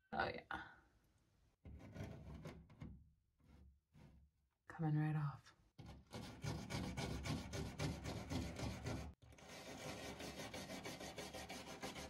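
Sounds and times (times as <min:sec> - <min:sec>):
scraper and wire brush scrubbing paint: 0:05.8 - 0:12.0.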